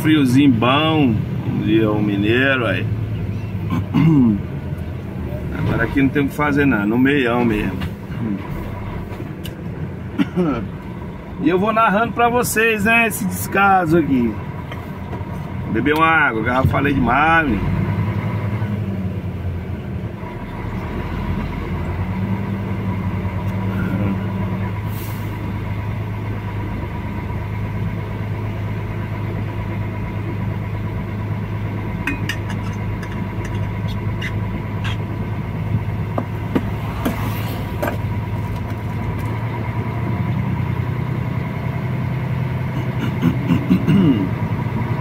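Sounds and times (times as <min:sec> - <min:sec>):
truck engine running: 0:00.0 - 0:45.0
short hisses: 0:24.9 - 0:25.4.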